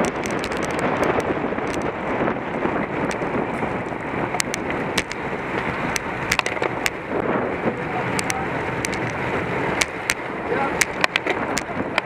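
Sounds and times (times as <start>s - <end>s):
bicycle road noise: 0.0s - 12.0s
rushing wind: 0.0s - 12.0s
sharp clicks: 4.3s - 7.0s, 8.1s - 9.2s, 9.8s - 12.0s.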